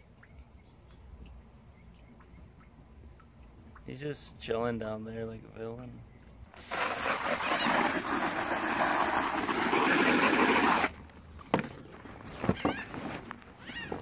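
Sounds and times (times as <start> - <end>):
hose water spraying on a bag: 6.6 - 11.0.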